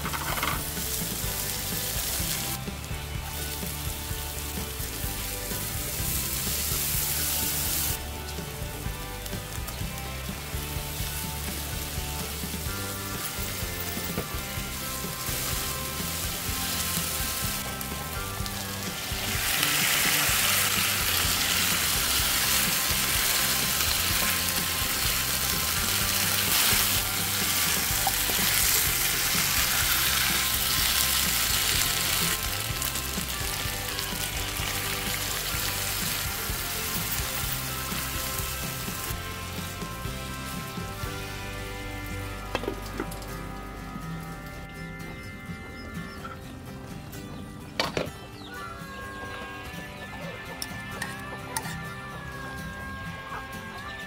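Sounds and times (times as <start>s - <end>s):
food sizzling in hot oil: 0.0s - 42.5s.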